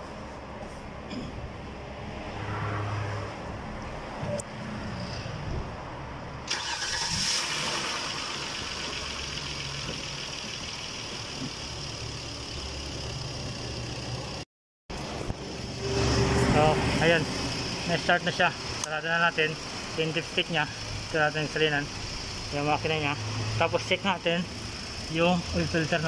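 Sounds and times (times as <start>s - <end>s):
car engine starting and idling: 6.4s - 26.0s.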